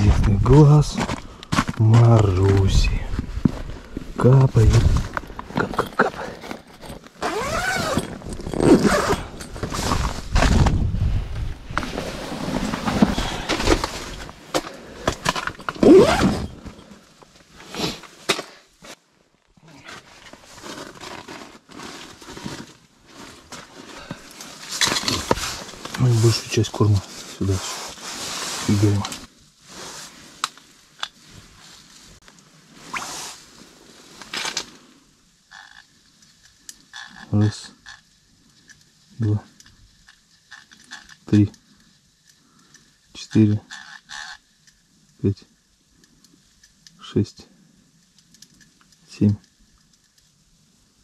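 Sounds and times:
tent fabric and clothing rustling: 0:00.0 - 0:34.9
rustling swishes: 0:20.1 - 0:30.4, 0:31.2 - 0:34.3
fishing reel rattling croak: 0:35.4 - 0:38.8, 0:39.6 - 0:41.4, 0:42.2 - 0:44.9.

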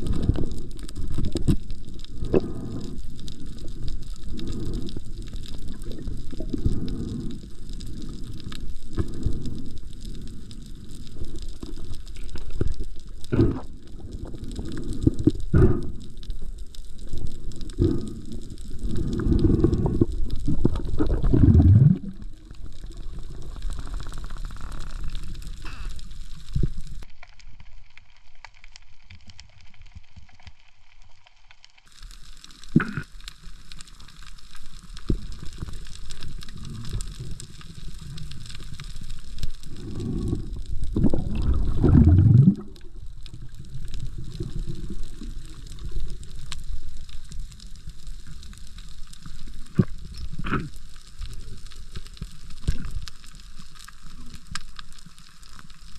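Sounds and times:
muffled underwater noise: 0:00.0 - 0:27.0, 0:32.6 - 0:39.0, 0:49.3 - 0:51.9
water gurgling surges: 0:20.5 - 0:22.2, 0:40.9 - 0:42.8.

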